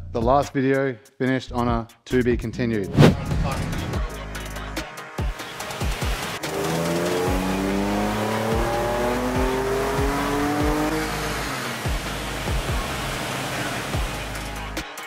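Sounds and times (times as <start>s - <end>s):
engine revving at full throttle: 6.4s - 14.6s.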